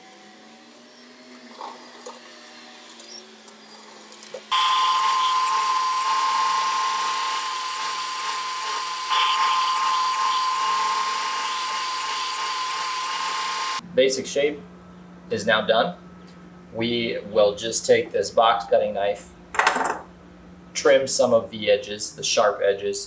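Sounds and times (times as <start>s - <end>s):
belt sander whining on wood: 0.0s - 13.8s.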